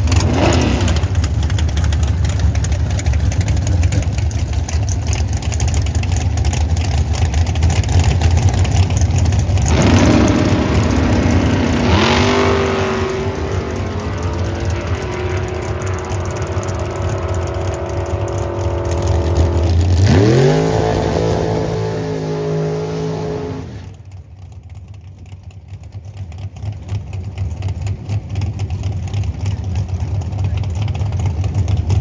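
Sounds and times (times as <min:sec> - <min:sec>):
racing car engine revving: 0:00.0 - 0:01.5, 0:07.7 - 0:24.1
low rumble: 0:08.4 - 0:24.1.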